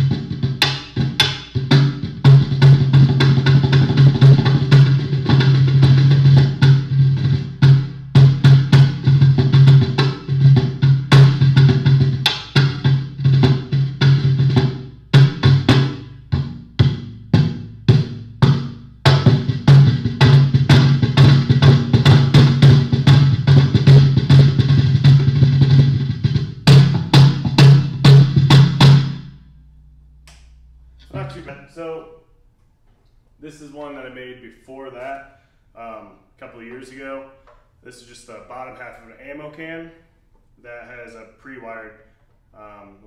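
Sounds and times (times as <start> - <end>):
snare-rattling slaps: 30.2 - 30.6.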